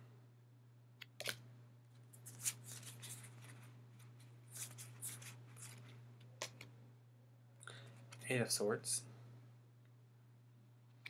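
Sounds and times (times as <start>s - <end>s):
cards sliding and rustling: 2.2s - 6.6s.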